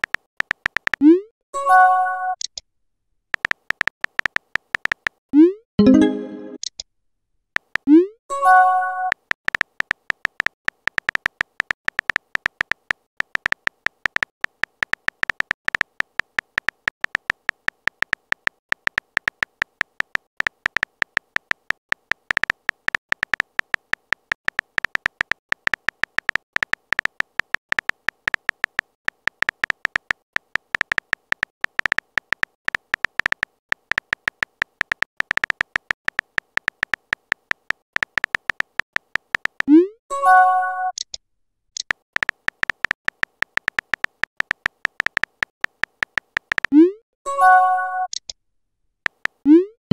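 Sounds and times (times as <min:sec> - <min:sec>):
phone keyboard typing clicks: 0:00.0 - 0:01.1, 0:03.4 - 0:05.2, 0:07.6 - 0:08.0, 0:08.9 - 0:39.7, 0:41.8 - 0:46.8, 0:49.1 - 0:49.5.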